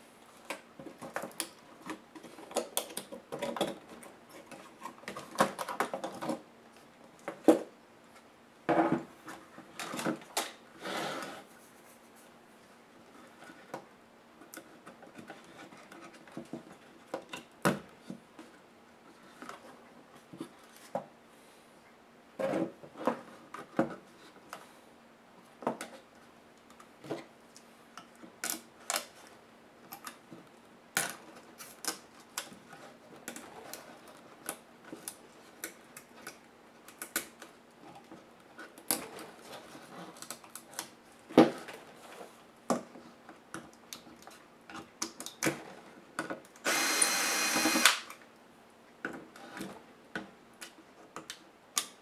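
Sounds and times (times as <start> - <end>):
cordless electric screwdriver running: 46.6 - 48.0.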